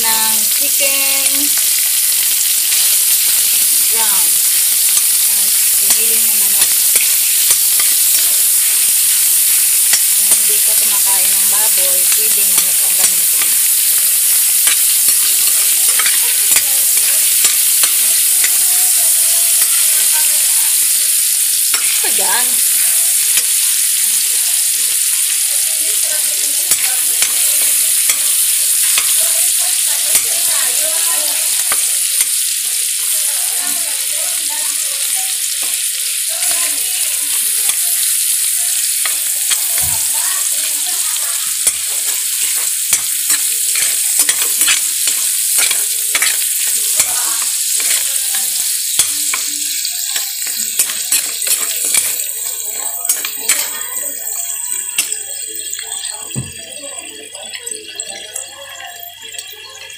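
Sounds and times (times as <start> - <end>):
metal spoon scraping a pan: 0.0 - 33.8, 34.7 - 56.2
meat sizzling in oil: 0.0 - 59.9.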